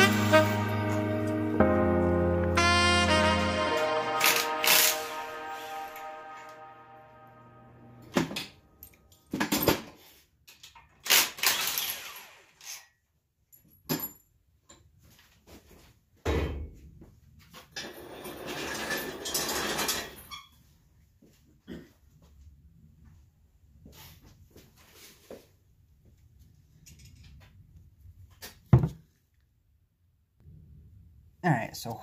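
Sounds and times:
background music: 0.0s - 9.0s.

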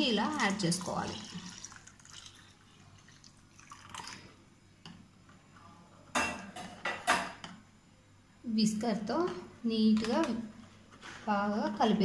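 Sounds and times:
milk pouring into tub: 0.3s - 4.4s.

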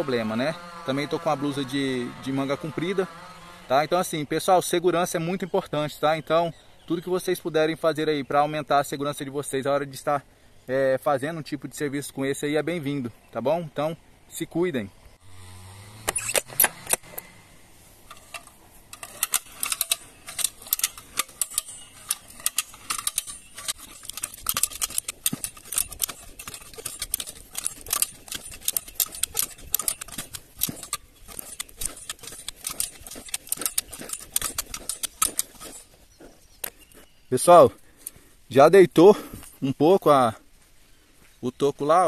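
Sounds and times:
ratchet pawls clicking rapidly: 18.1s - 35.8s.

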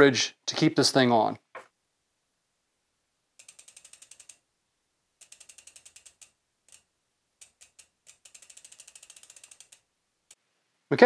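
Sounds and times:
bicycle freehub clicking: 3.4s - 4.4s, 5.2s - 10.4s.

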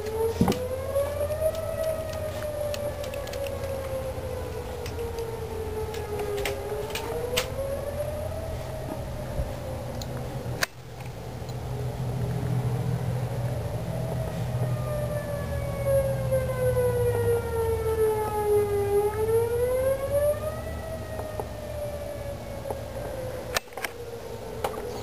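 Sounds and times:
siren wailing: 0.0s - 10.7s, 11.7s - 25.0s.

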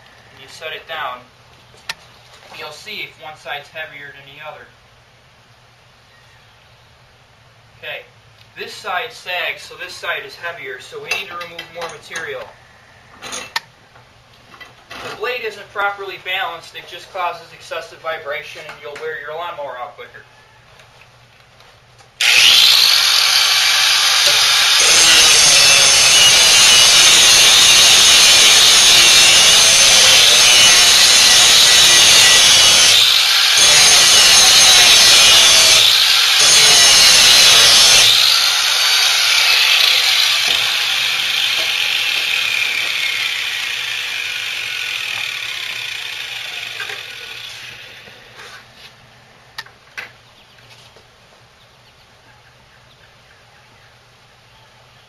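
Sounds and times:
grinder disc spinning down: 22.2s - 48.3s
angle grinder grinding metal: 22.2s - 48.7s.

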